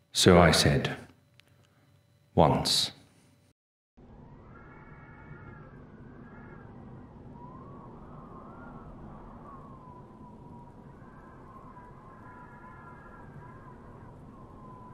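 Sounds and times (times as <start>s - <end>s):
low rumbling drone: 4.0s - 14.9s
thin wavering gliding tone: 4.0s - 14.9s.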